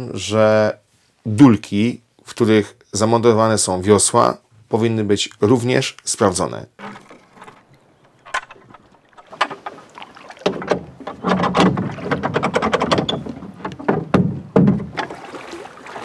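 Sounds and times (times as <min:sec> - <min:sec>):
wooden oar knocking against boat: 0:06.8 - 0:16.0.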